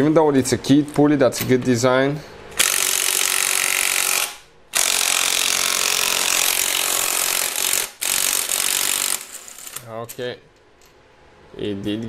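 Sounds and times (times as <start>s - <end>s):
pneumatic impact wrench hammering: 2.6s - 9.8s.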